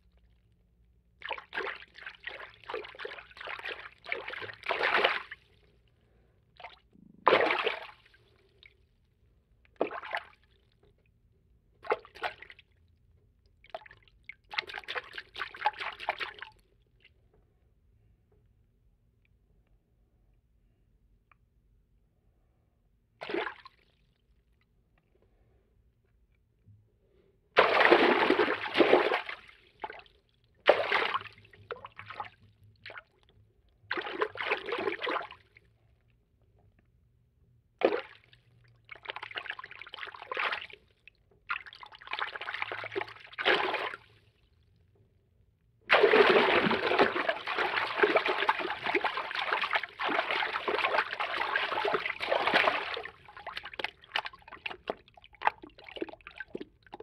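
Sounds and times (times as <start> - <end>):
water movement: 45.9 - 57.0.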